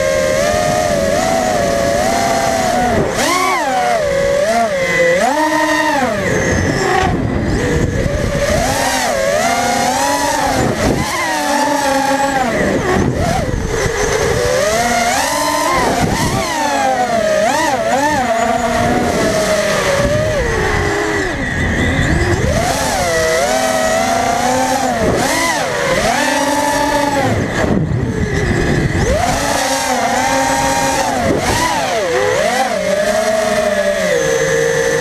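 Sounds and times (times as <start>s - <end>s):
drone motors whining: 0.0s - 35.0s.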